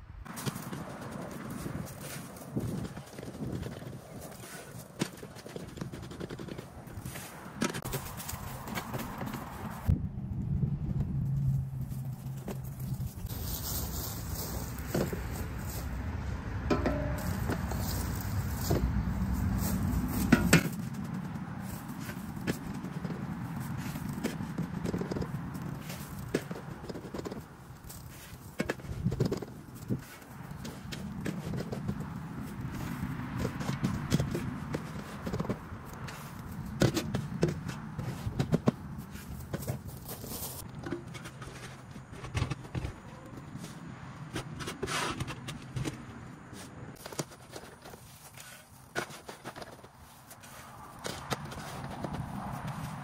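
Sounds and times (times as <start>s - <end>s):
footsteps through dry leaves: 11.9s - 16.1s, 17.0s - 21.0s
shovel scraping in wheelbarrow: 16.7s - 18.8s, 44.3s - 46.0s, 46.6s - 52.9s.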